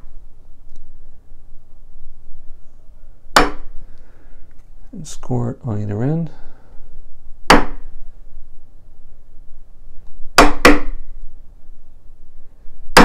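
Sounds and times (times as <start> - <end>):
hammer striking wood chisel: 3.3 - 3.7, 7.5 - 7.9, 10.4 - 11.0.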